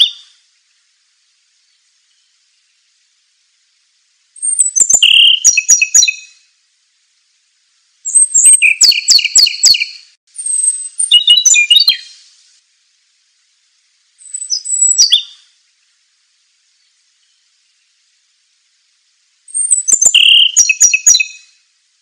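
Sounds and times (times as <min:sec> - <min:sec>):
songbird singing: 0:00.0 - 0:12.6, 0:13.3 - 0:22.0.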